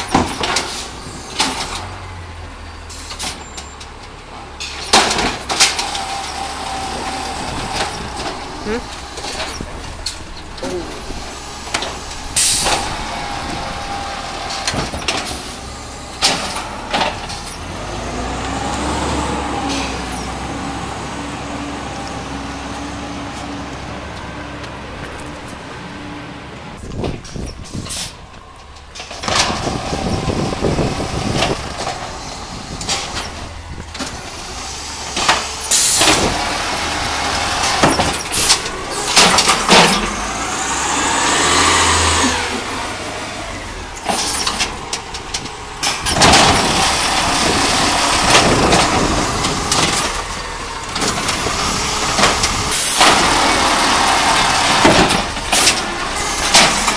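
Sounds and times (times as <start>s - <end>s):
clunks and knocks: 0.0s - 2.0s, 2.9s - 17.9s, 26.8s - 34.4s, 37.4s - 40.4s, 43.9s - 56.9s
truck engine running: 0.0s - 56.9s
hydraulic whine: 5.8s - 17.6s.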